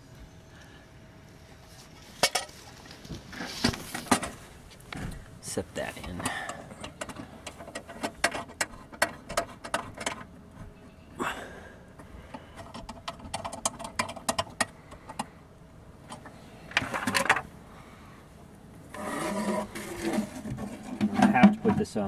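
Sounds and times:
scraping rustles: 1.6 - 10.8, 18.8 - 22.0
metal and plastic clicks and knocks: 6.2 - 10.3, 12.3 - 15.3.

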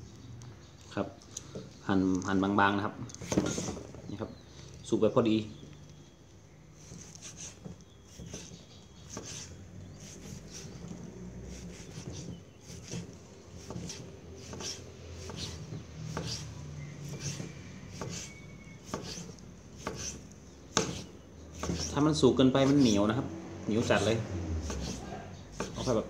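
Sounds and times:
knife slicing on wooden board: 6.8 - 22.0, 24.0 - 26.0.

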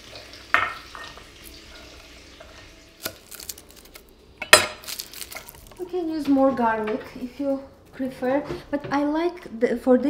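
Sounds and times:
faint sizzle in skillet: 0.0 - 4.2.

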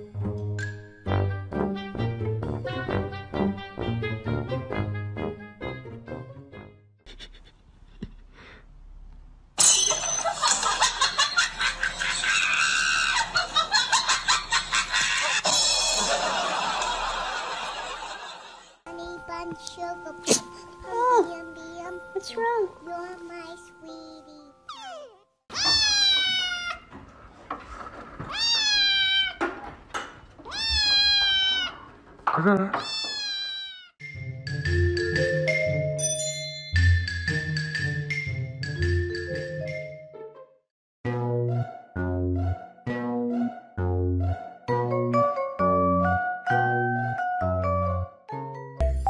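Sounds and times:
person laughing and shrieking: 12.0 - 13.4, 14.9 - 16.0
kitten meowing: 24.7 - 26.9, 28.3 - 29.4, 30.4 - 31.8, 32.8 - 33.9.

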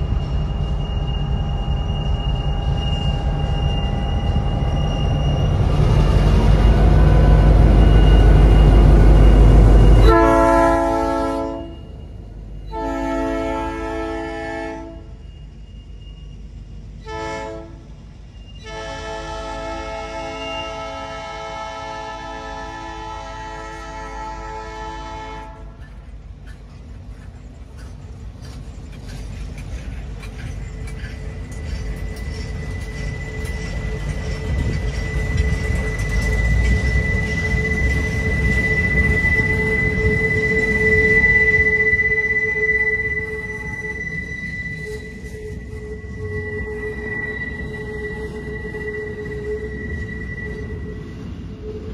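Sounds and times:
diesel locomotive rumbling: 0.0 - 51.9
multi-tone train horn: 8.3 - 11.9, 12.6 - 15.2, 17.0 - 17.9, 18.6 - 26.0, 36.9 - 51.9.

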